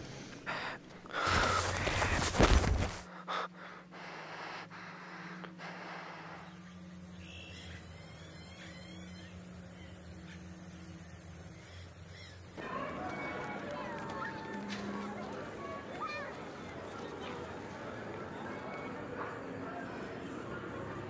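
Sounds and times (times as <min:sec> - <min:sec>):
open field ambience hiss: 0:00.0 - 0:19.0
bird chirps: 0:06.4 - 0:12.6.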